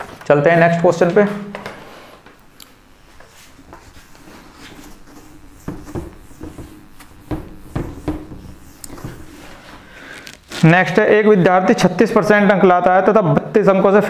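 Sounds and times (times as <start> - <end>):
whiteboard being wiped by hand: 3.0 - 10.8.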